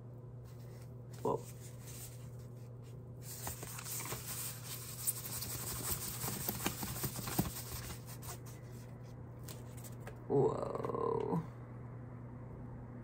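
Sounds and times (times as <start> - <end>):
paper wrapping crinkling: 1.3 - 10.1.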